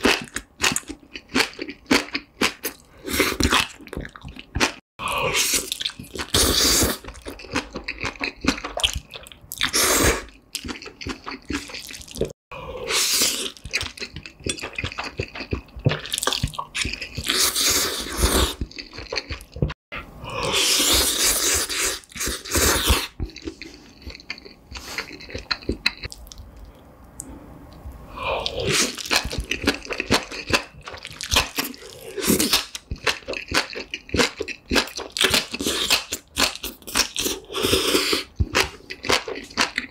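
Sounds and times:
kimchi crunching: 0:00.0 - 0:12.3, 0:28.4 - 0:39.9
wet sticky chewing: 0:05.5 - 0:12.3.

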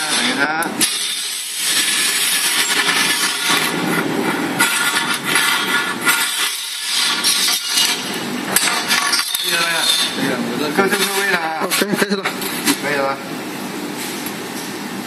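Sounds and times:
metal strip scraping on table: 0:00.0 - 0:04.0, 0:04.6 - 0:10.2.

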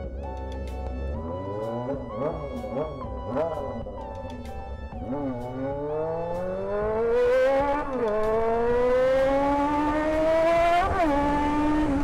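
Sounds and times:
motorcycle engine revving through gears: 0:05.0 - 0:12.0.

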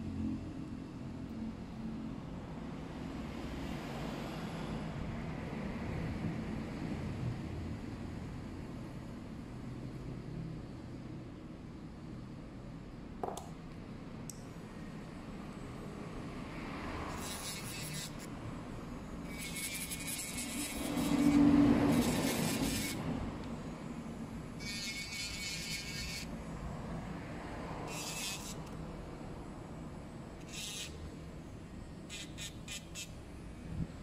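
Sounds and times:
nail drill whirring: 0:19.2 - 0:23.0, 0:24.6 - 0:26.3, 0:27.9 - 0:28.8, 0:30.4 - 0:31.0, 0:32.1 - 0:33.2.

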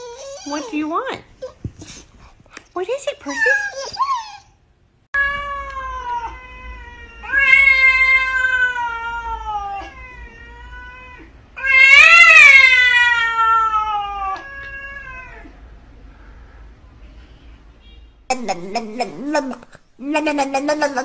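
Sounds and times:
cat yowling: 0:05.2 - 0:15.6.

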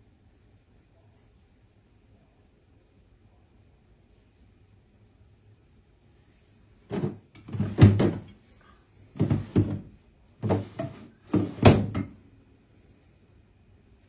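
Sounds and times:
drawers knocking and scraping: 0:06.9 - 0:08.3, 0:09.2 - 0:12.2.

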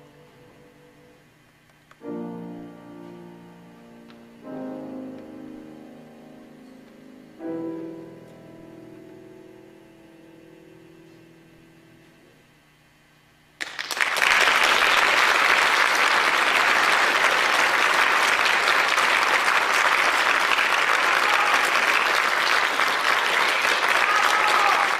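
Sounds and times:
faint hum: 0:00.0 - 0:24.9
audience applauding: 0:13.6 - 0:24.9.

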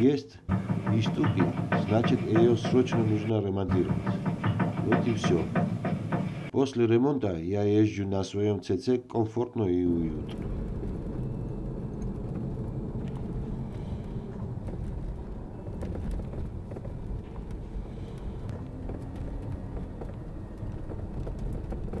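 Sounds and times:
faint clicks and knocks: 0:00.5 - 0:06.5, 0:10.3 - 0:22.0
road and tyre rumble: 0:10.2 - 0:22.0.

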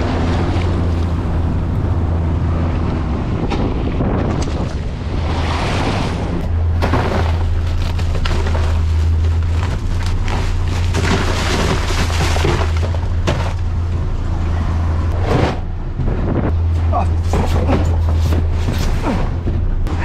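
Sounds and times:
wind buffeting microphone: 0:00.0 - 0:06.4
boat engine low rumble: 0:00.0 - 0:20.0.

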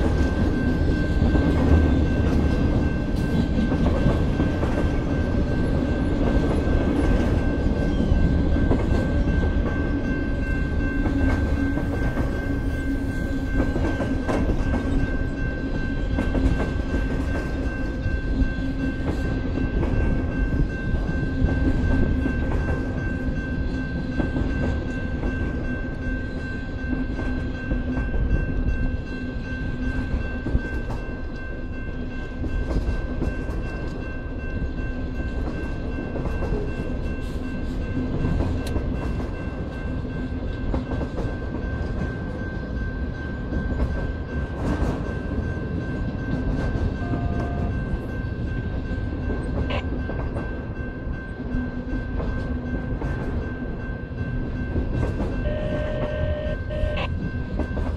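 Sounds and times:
train wheels rumbling on rail: 0:00.0 - 0:57.9
steady high tone: 0:55.3 - 0:57.4.

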